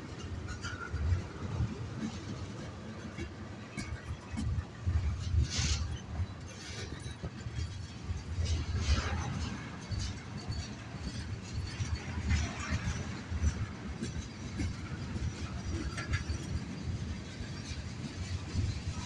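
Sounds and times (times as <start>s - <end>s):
freight train rumbling past: 0.0s - 19.0s
steel wheels clattering on rails: 0.0s - 19.0s.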